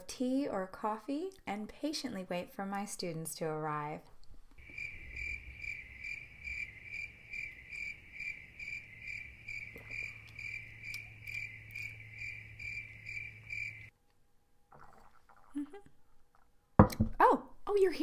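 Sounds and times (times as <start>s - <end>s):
crickets chirping: 4.6s - 13.9s.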